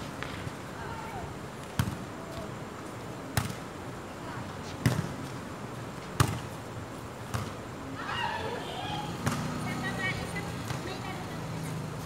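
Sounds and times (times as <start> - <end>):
volleyball smacks: 9.2 - 9.5.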